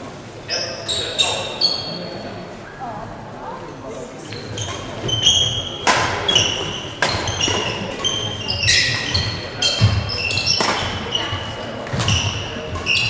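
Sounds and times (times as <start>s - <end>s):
shoes squeaking on court: 0.5s - 2.0s, 4.3s - 13.0s
racket hitting shuttlecock: 4.6s - 13.0s.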